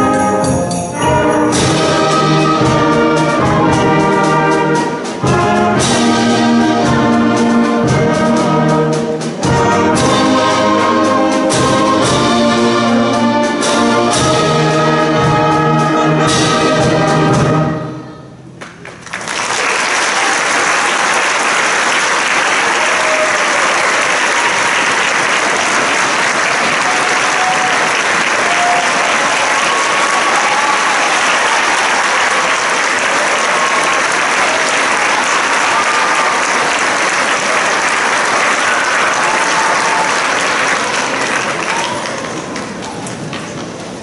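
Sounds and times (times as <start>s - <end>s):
audience applauding: 18.6s - 44.0s.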